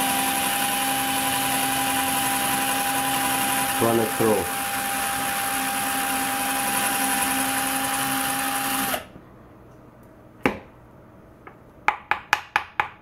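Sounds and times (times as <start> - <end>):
cordless drill whining: 0.0 - 9.1.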